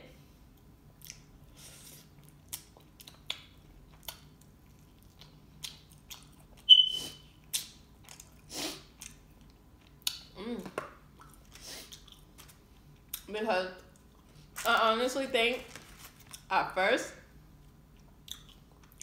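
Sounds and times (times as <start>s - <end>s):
person chewing: 0.6s - 10.4s, 11.1s - 14.7s, 17.5s - 19.0s
high squeak: 6.7s - 7.2s
wet mouth clicks and smacks: 18.2s - 19.0s.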